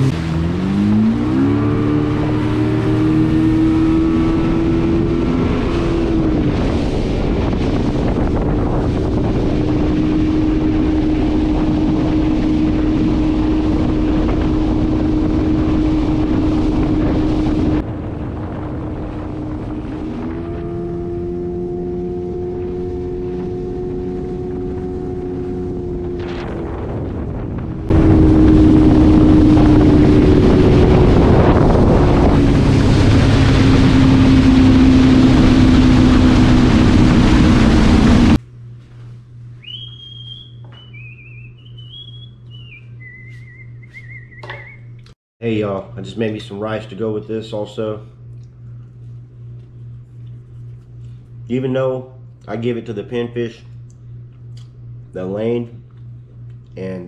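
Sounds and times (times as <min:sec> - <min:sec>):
water rushing: 0:00.0 - 0:38.4
wind on microphone: 0:00.0 - 0:38.4
outboard motor drone: 0:00.0 - 0:57.0.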